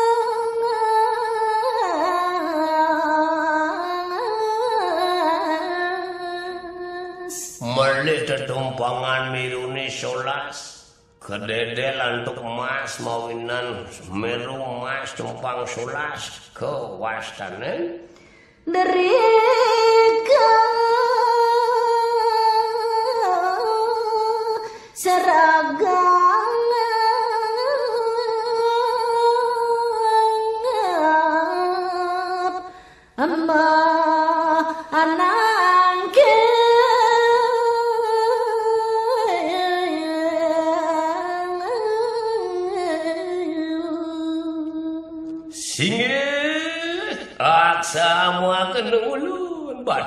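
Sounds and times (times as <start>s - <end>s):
woman singing unaccompanied: 0.0s - 7.6s, 18.7s - 45.7s
singer breathing: 18.0s - 18.7s, 24.6s - 25.0s, 32.6s - 33.2s.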